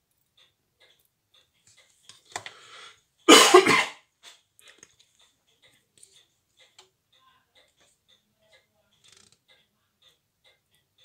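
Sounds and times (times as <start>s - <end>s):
quiet breath: 2.4s - 3.2s
person coughing: 3.3s - 4.0s.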